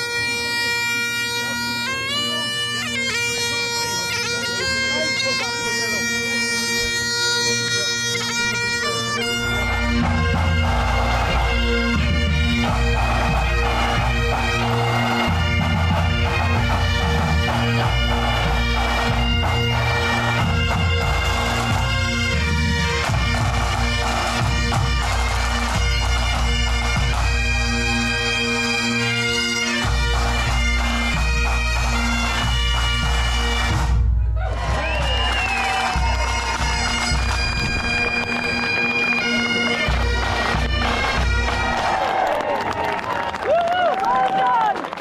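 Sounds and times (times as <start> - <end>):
bagpipes playing with drones: 0.0 - 42.3
drums beating: 8.9 - 42.8.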